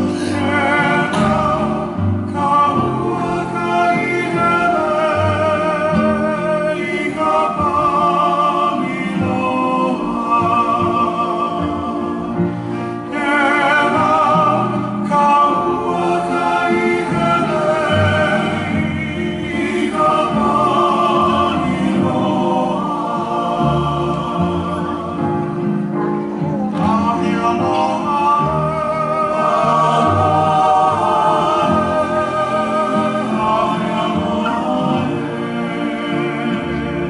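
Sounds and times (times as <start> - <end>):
plucked strings: 0.0 - 8.1
voices singing with vibrato: 0.0 - 37.0.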